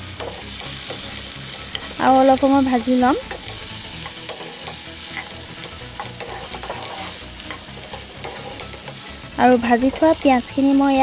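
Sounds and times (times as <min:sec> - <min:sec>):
chicken sizzling in oil: 0:00.0 - 0:11.0
wooden spatula scraping pan: 0:03.2 - 0:10.5.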